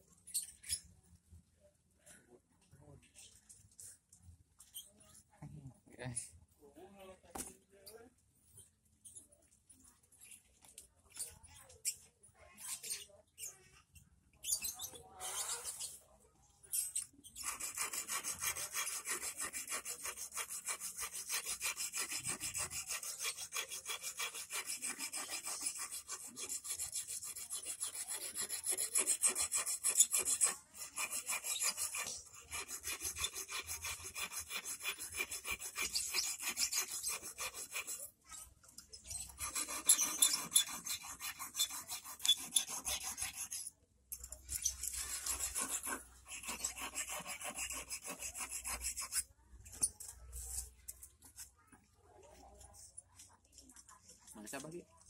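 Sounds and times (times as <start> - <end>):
hand file rasping on metal: 16.9 - 50.7.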